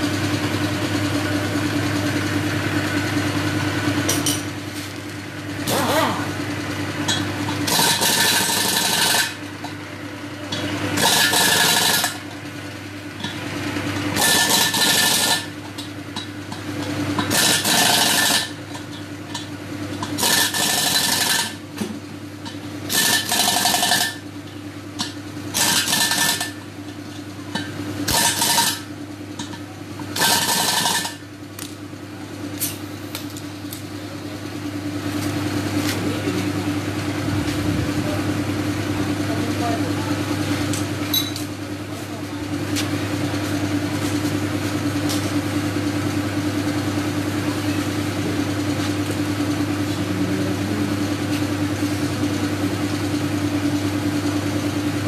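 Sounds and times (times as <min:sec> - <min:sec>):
pneumatic impact wrench bursts: 0:07.6 - 0:09.4, 0:11.0 - 0:12.2, 0:14.2 - 0:15.6, 0:17.2 - 0:18.6, 0:20.1 - 0:21.6, 0:22.9 - 0:24.2, 0:25.5 - 0:26.6, 0:28.1 - 0:28.9, 0:30.2 - 0:31.2.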